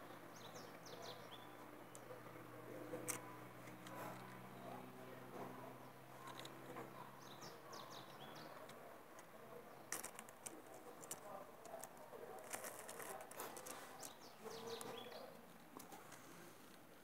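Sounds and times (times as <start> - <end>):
light clicks and knocks of parts: 3.0 - 4.4, 6.2 - 6.9, 8.0 - 16.9.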